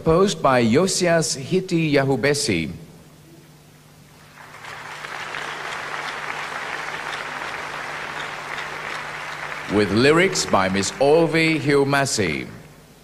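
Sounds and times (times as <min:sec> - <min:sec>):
audience applauding: 0:04.2 - 0:12.2.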